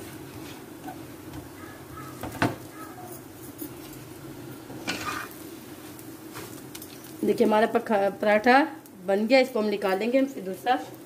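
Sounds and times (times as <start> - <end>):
low kitchen hum: 0.0 - 11.0
spatula clacking on griddle: 4.8 - 5.4.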